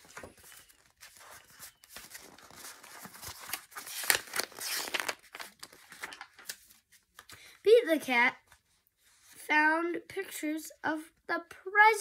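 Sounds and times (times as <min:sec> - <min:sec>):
book pages rustling: 0:00.0 - 0:07.5, 0:08.4 - 0:09.4.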